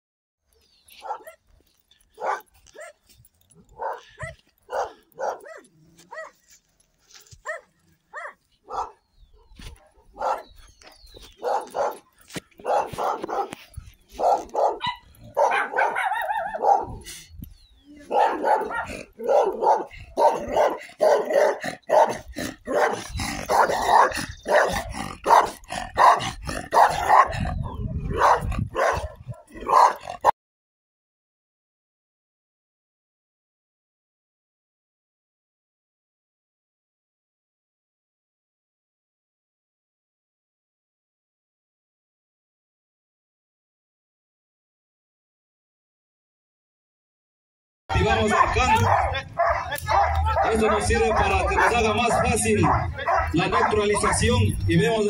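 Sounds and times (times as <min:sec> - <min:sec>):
dogs barking: 0:00.5 - 0:06.4, 0:07.4 - 0:17.2, 0:18.0 - 0:30.3, 0:47.9 - 0:55.0.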